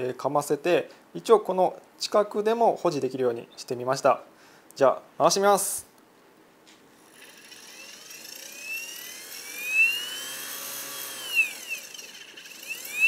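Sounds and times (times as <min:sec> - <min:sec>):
spindle motor whine rising: 0:07.0 - 0:13.0.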